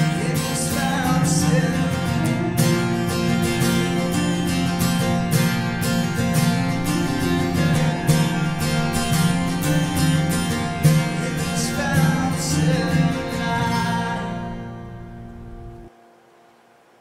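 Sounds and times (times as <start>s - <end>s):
acoustic guitar strumming: 0.0s - 15.9s.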